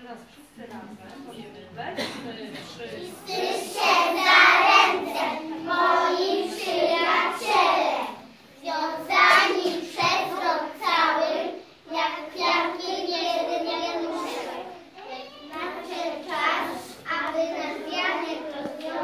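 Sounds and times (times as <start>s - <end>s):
children singing in unison: 3.2s - 14.7s.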